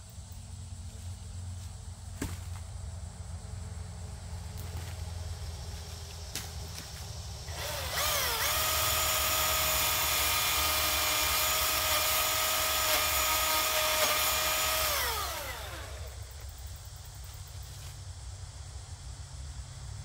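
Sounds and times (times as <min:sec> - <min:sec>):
chainsaw high whine: 0:04.2 - 0:16.5.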